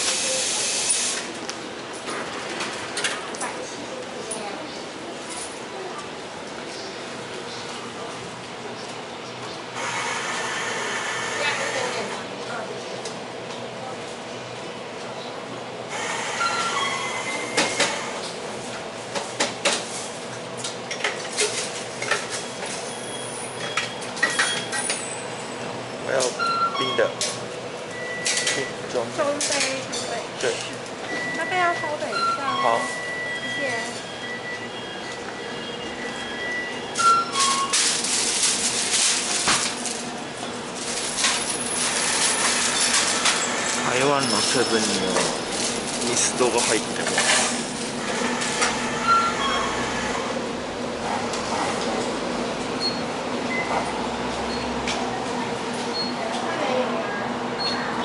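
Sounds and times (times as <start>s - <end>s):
coffee machine whirring: 9.8s - 12.3s, 15.8s - 20.1s, 30.4s - 56.1s.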